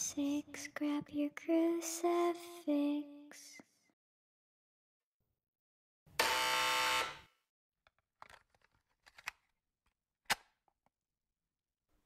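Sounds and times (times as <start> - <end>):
harsh electric door buzzer: 6.1 - 7.4.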